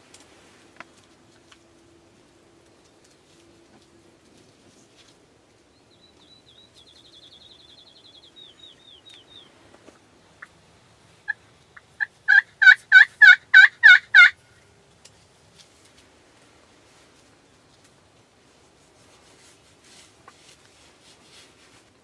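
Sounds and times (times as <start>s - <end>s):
faint songbird trill: 5.6s - 9.6s
turkey call yelps: 11.2s - 14.4s.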